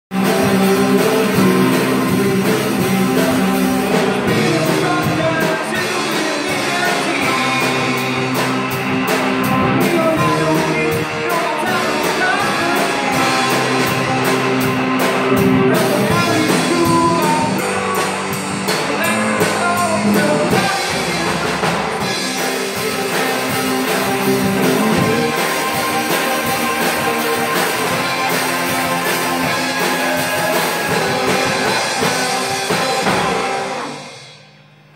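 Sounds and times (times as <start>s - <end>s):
man singing into microphone: 0.1s - 8.3s, 9.6s - 14.0s, 15.6s - 25.6s, 29.4s - 33.7s
electric guitars: 0.1s - 34.6s
bass guitar: 0.1s - 34.9s
drum kit: 0.1s - 34.9s.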